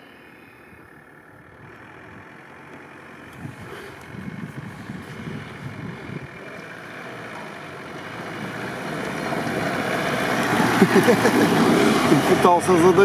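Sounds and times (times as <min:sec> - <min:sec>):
off-road vehicle engine: 0:00.0 - 0:13.0.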